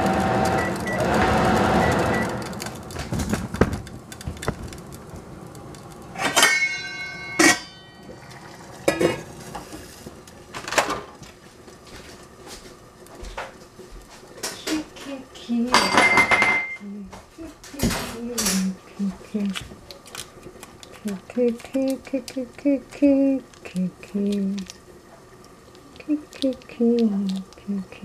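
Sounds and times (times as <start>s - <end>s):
metallic ring: 6.2s - 8.2s
metal kitchenware clinking: 6.2s - 9.3s, 15.7s - 16.8s.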